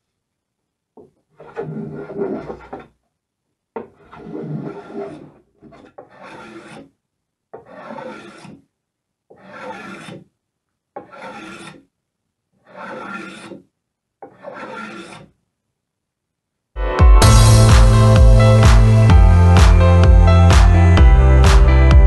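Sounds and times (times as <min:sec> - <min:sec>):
hand plane cutting wood: 0:01.3 - 0:03.0, 0:03.8 - 0:08.7, 0:09.3 - 0:10.3, 0:11.0 - 0:11.9, 0:12.6 - 0:15.4.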